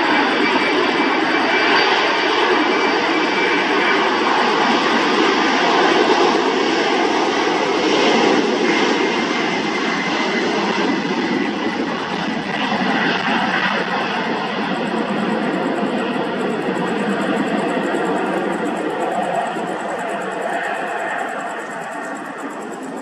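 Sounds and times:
jet engines rushing: 0.0 - 23.0
faint engine whine: 10.6 - 23.0.

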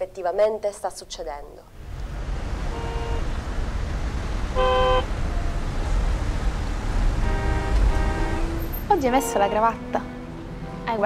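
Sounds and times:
traffic rumble: 0.0 - 11.0
car horns honking: 2.6 - 3.4, 4.5 - 5.2, 7.2 - 10.3.

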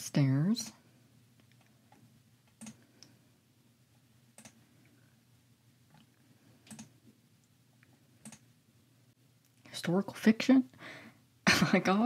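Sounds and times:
soft computer mouse clicks: 1.4 - 3.1, 4.4 - 4.6, 6.6 - 6.9, 8.2 - 8.5.

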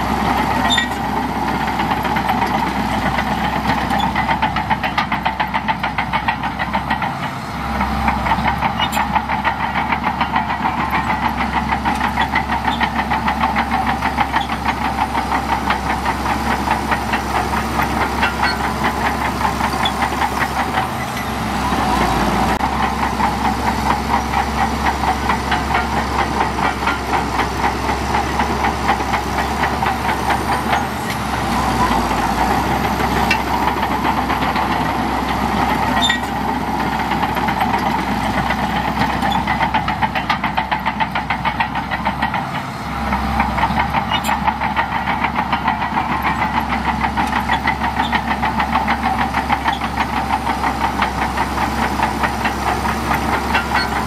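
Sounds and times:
bulldozer diesel engine throbbing: 0.0 - 54.0.

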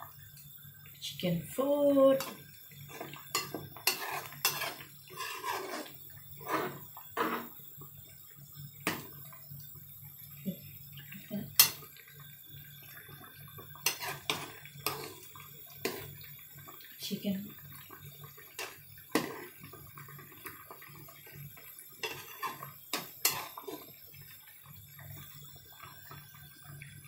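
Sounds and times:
metal spoon scraping a pot: 2.9 - 7.6, 13.8 - 16.1, 22.0 - 23.9.

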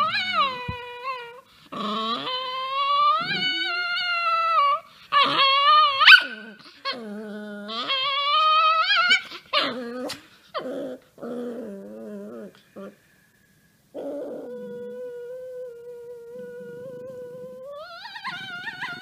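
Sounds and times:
small dog howling: 0.0 - 7.0, 7.6 - 13.0, 14.0 - 19.0
dog yelp: 3.2 - 6.5.

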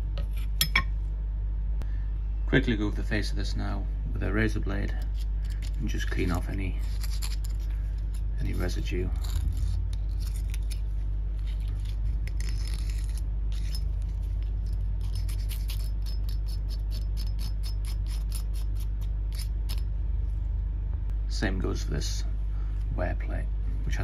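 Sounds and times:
steady low hum: 0.0 - 24.0
razor blade scraping metal: 4.8 - 19.9.

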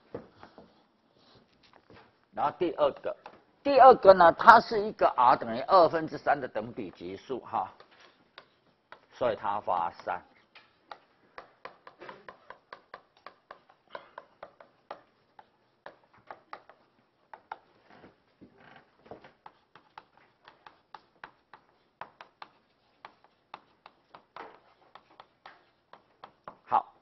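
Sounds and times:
chalk tapping on chalkboard: 6.8 - 17.8, 19.1 - 26.8
chalk scraping on chalkboard: 6.9 - 17.7, 19.2 - 26.6.

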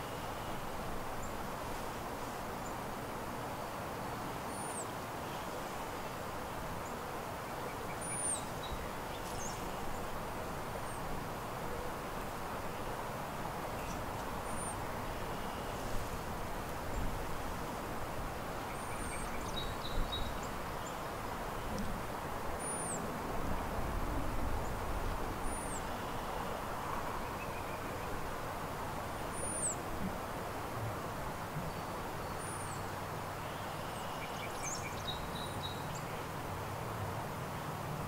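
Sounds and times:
small birds calling: 6.8 - 10.2, 18.6 - 21.1, 22.6 - 23.0, 25.4 - 28.2, 29.2 - 29.8.

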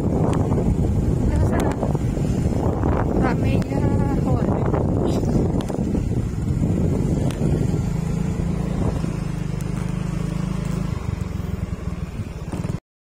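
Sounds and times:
motor scooter engine humming: 0.0 - 12.8.

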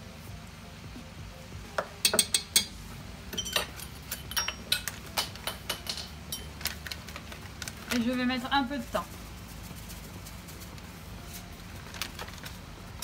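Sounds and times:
spoon and glass bottle clinking: 3.3 - 6.5.

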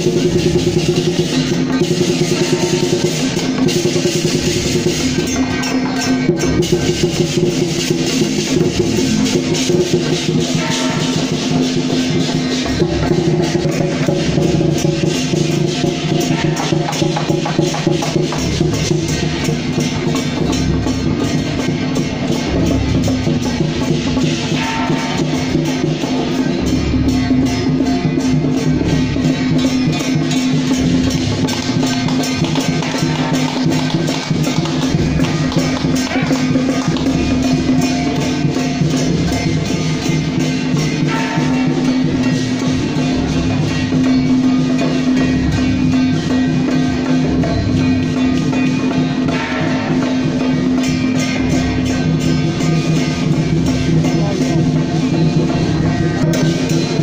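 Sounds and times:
lion-dance drumming and percussion: 0.0 - 57.0
sustained held melody: 2.4 - 17.4.

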